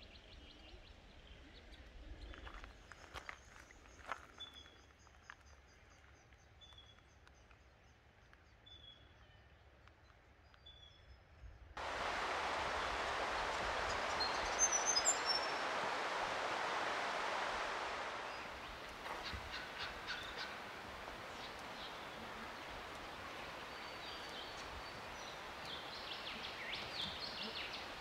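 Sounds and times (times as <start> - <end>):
faint bird calls: 11.8 - 28.0
loud steady rushing noise: 11.8 - 28.0
high bird chirps: 12.1 - 28.0.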